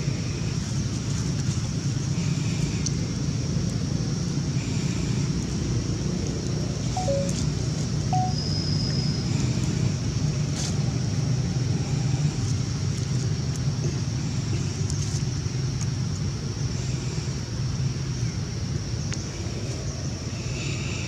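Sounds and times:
high-pitched hiss: 7.0 - 8.5.

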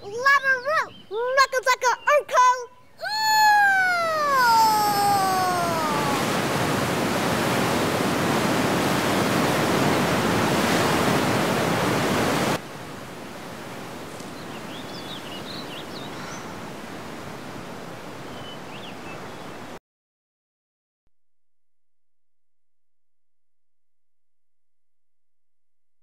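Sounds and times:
water surging roar: 3.0 - 18.3.

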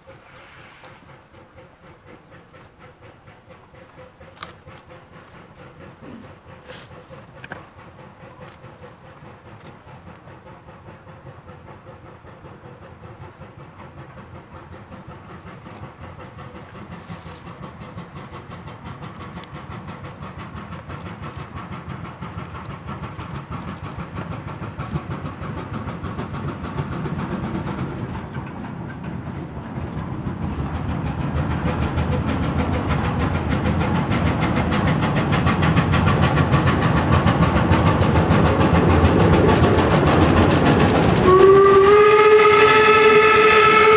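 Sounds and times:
steam locomotive exhaust chuffs: 0.0 - 43.9.

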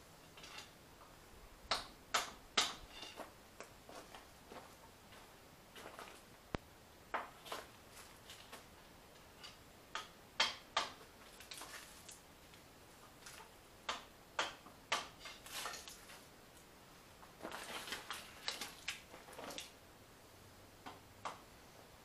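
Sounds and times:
footsteps on gravel: 3.9 - 6.3.

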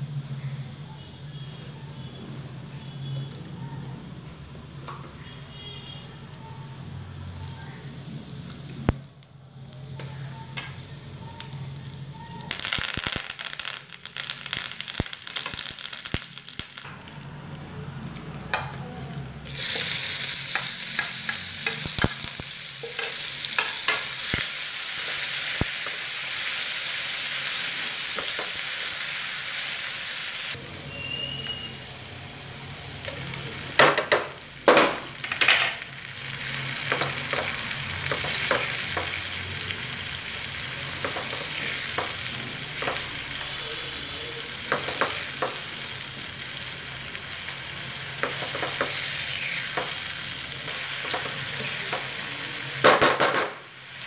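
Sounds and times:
hot oil sizzling in frying pan: 0.0 - 54.0
utensils tapping and scraping pan: 20.5 - 24.4, 36.8 - 39.2, 41.0 - 43.2, 44.7 - 45.6, 48.2 - 52.2.

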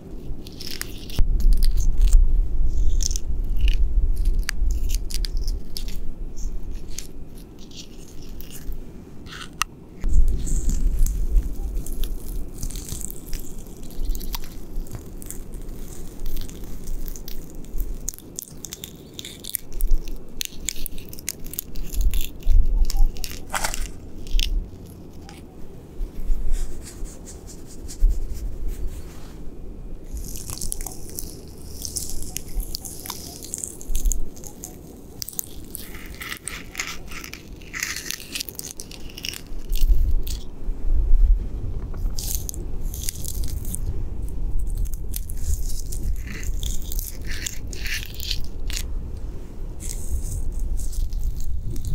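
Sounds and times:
gloved hand scratching tree bark: 0.0 - 2.1, 2.7 - 29.4, 30.0 - 40.5, 42.0 - 51.9
low bumps: 9.7 - 15.8, 39.8 - 51.9.

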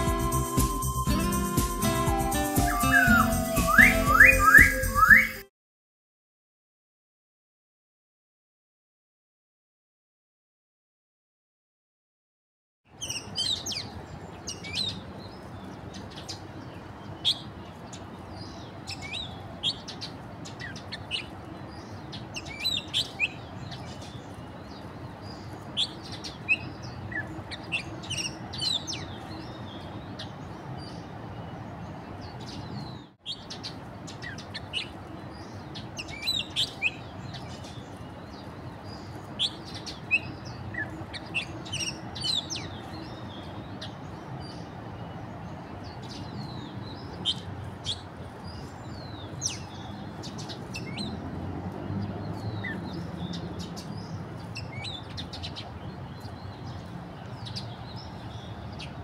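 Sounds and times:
starlings chirping: 0.0 - 5.4, 12.9 - 59.0
low background noise: 12.9 - 59.0.

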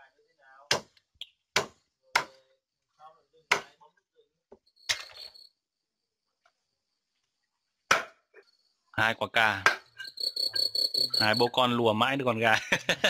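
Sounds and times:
faint crickets chirring: 0.0 - 13.0
cleaver chopping on wooden board: 0.7 - 2.4, 3.5 - 3.7, 7.9 - 8.2.

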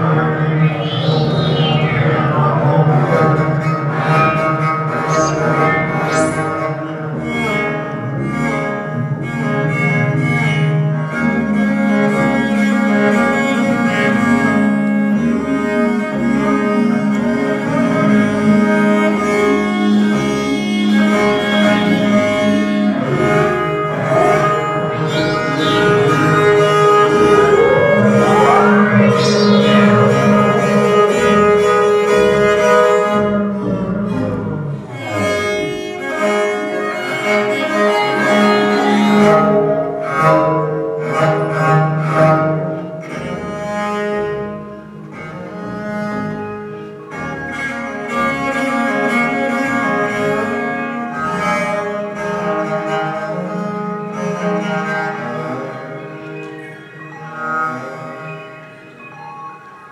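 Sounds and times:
electronic music: 0.0 - 7.6, 17.6 - 40.3, 53.2 - 59.9
bowed viol notes: 0.0 - 59.9.

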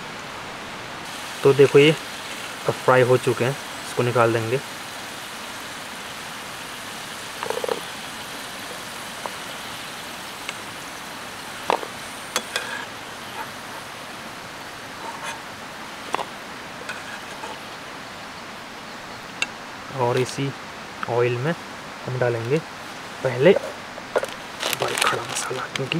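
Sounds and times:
potatoes sizzling in hot oil: 1.0 - 20.4, 22.0 - 25.9
metal spatula scraping a pan: 11.8 - 13.9, 15.0 - 15.5, 16.2 - 17.6.

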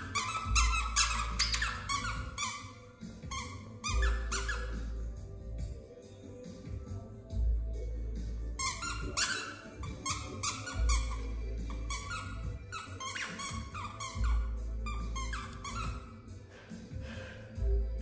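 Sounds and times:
squeaky dog toy squeaking: 0.0 - 5.1, 8.6 - 16.4.

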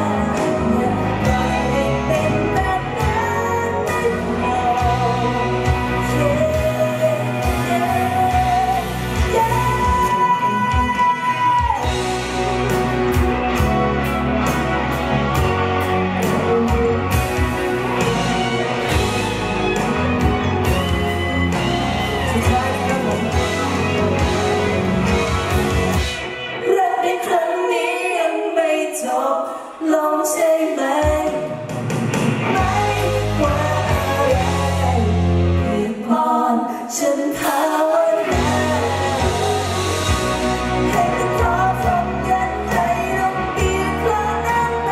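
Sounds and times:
man singing: 0.0 - 12.6, 21.6 - 24.7, 32.5 - 36.3, 37.0 - 44.9
bass guitar: 0.0 - 26.6, 31.6 - 35.9, 38.2 - 44.9
electric guitar: 0.0 - 28.8, 31.0 - 36.1, 37.3 - 44.9.

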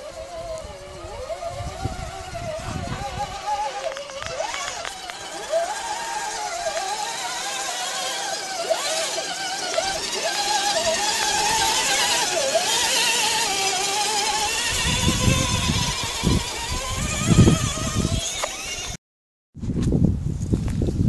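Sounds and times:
electric motor and gearbox whining: 0.0 - 19.0
low rumbling bursts: 0.0 - 19.0.

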